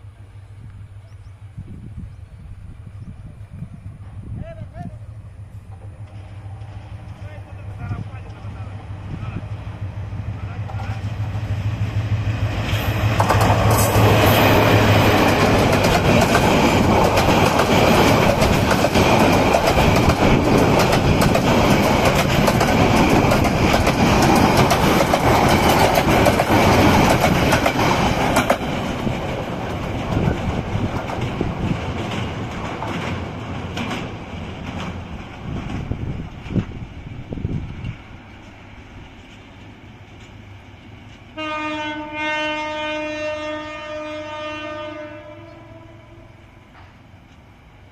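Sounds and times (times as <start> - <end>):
locomotive engine drone: 0.0 - 36.3
train wheels clattering on rails: 10.3 - 41.4.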